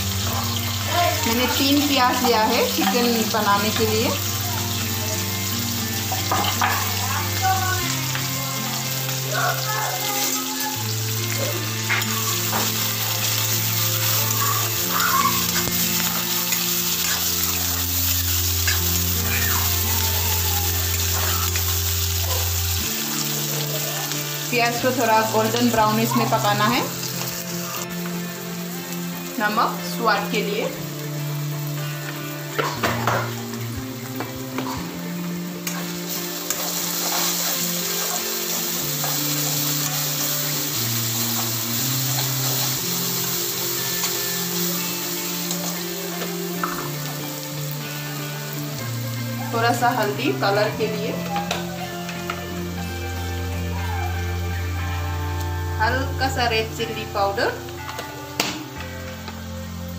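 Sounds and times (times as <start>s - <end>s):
background music with held notes: 0.0s - 59.9s
onions sizzling in hot oil: 0.0s - 59.9s
spatula scraping a pan: 15.4s - 19.8s, 35.6s - 44.7s
steel spoon scraping a wok: 35.6s - 40.5s.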